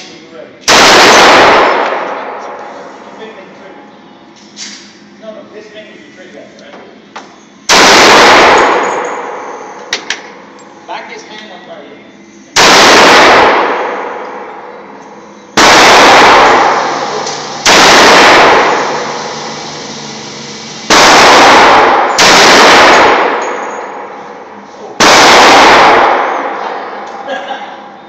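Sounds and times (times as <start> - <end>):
pistol shots with echo: 0.6 - 2.4, 7.7 - 9.5, 12.6 - 14.5, 15.6 - 19.3, 20.9 - 24.1, 25.0 - 26.6.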